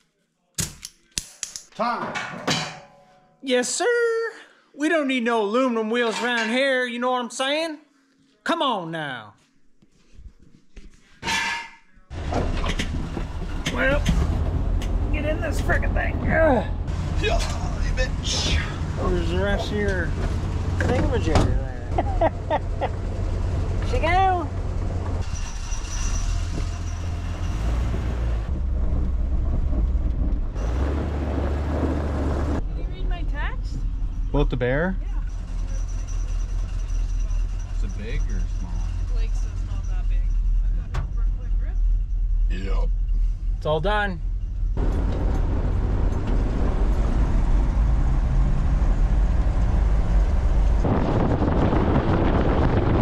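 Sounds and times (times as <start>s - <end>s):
engine and road rumble: 12.1s - 53.0s.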